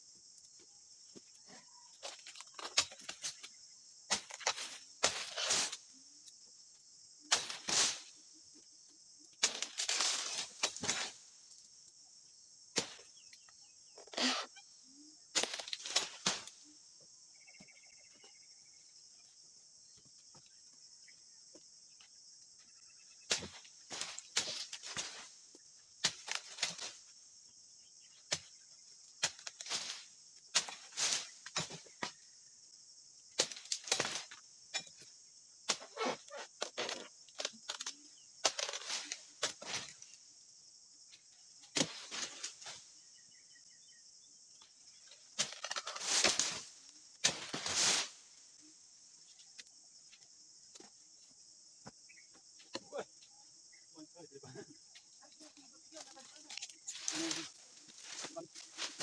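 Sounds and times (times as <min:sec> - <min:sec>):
high insect drone: 0:00.0 - 0:59.0
blade chopping palm fronds: 0:04.1 - 0:05.8, 0:07.3 - 0:08.1, 0:09.4 - 0:11.2, 0:12.7 - 0:13.2, 0:15.3 - 0:16.6, 0:23.3 - 0:25.3, 0:26.0 - 0:27.0, 0:29.2 - 0:32.2, 0:33.3 - 0:34.9, 0:35.7 - 0:40.0, 0:41.7 - 0:42.8, 0:45.3 - 0:48.2
fronds rustling through leaves: 0:09.4 - 0:11.5, 0:44.6 - 0:49.6, 0:55.4 - 0:59.0.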